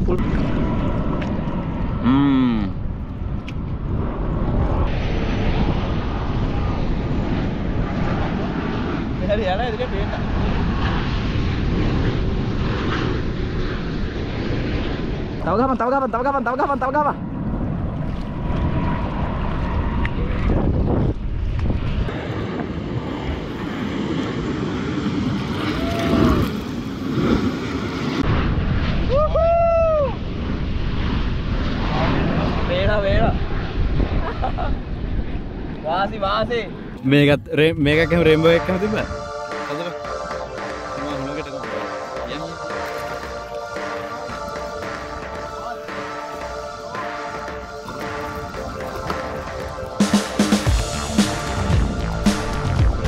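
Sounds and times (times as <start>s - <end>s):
jet airliner roaring overhead: 0.0s - 53.0s.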